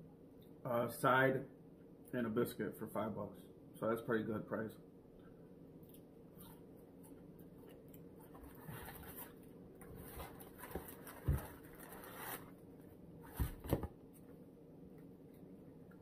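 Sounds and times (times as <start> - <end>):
food packaging rustling: 8.2 - 12.6.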